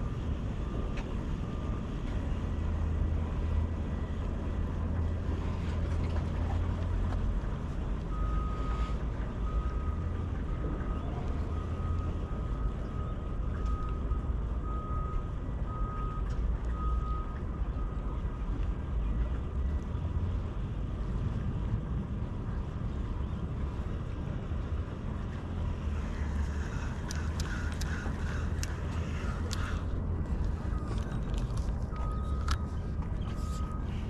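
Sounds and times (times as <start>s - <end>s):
steady low rumble: 0.0s - 34.0s
reversing alarm beeping: 8.1s - 18.2s, 28.3s - 29.9s, 30.5s - 34.0s.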